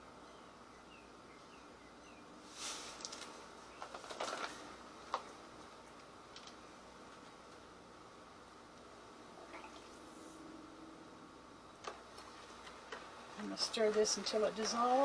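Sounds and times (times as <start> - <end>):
paper bag rustling: 2.5 - 5.3.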